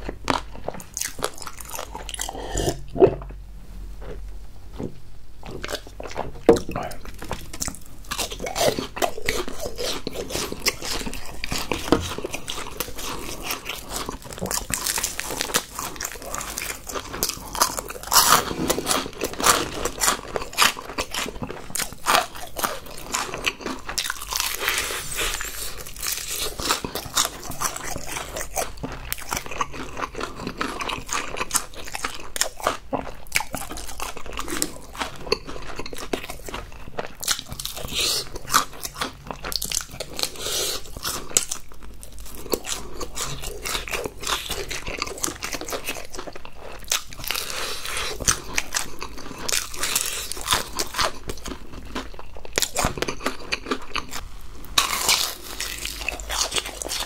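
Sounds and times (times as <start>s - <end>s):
crunching fried chicken: 0.0s - 2.8s, 5.4s - 57.0s.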